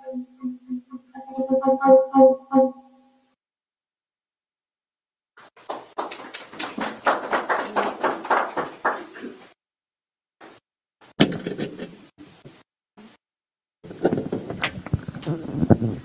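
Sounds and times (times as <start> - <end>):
audience clapping: 5.4 - 9.6.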